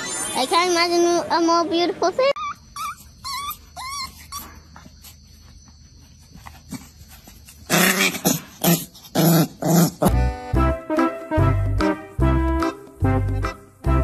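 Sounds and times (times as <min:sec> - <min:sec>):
dog whining: 0:02.4 - 0:05.2.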